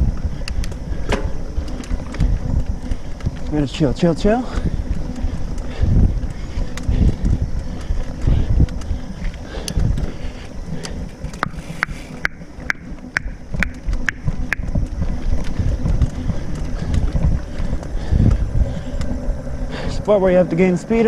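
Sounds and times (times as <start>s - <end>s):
wind buffeting microphone: 0.0s - 21.0s
bike knocking over ground: 1.0s - 2.3s.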